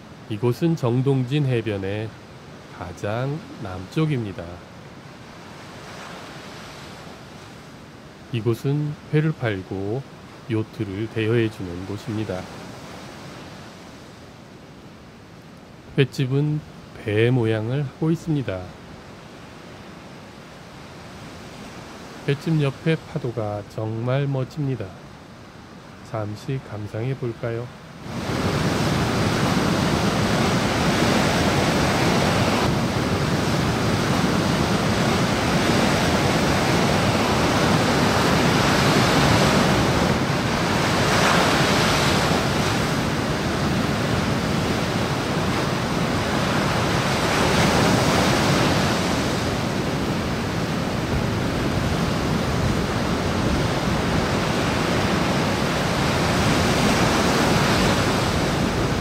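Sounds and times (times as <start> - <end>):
surf crashing on rocks: 25.4 - 59.0.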